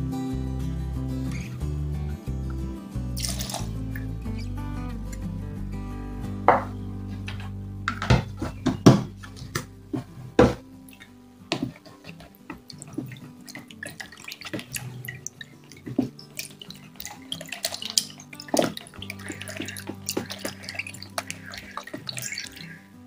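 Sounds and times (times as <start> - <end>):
background music: 0.0 - 23.0
liquid sloshing: 3.2 - 4.4, 6.5 - 23.0
spatula scraping and tapping jug: 6.5 - 10.6, 11.5 - 22.8.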